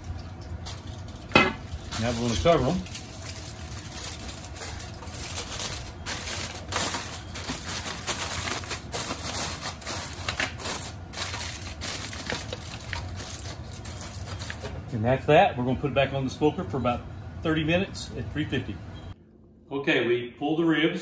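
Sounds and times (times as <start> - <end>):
aluminium foil crinkling: 0.0 - 15.0.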